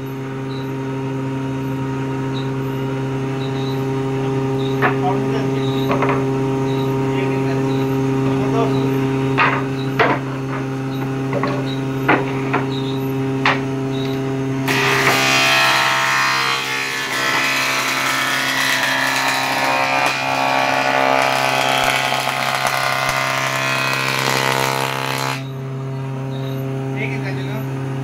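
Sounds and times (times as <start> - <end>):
blades planing wood: 14.6 - 25.5
jointer motor hum: 14.6 - 25.6.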